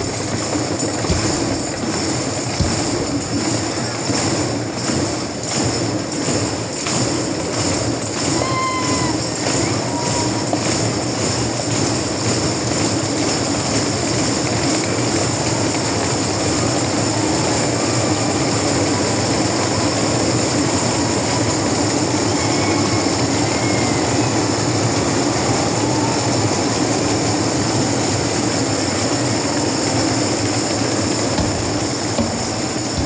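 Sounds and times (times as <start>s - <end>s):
drum kit: 0.0s - 5.2s, 31.2s - 33.0s
handheld percussion playing: 0.0s - 33.0s.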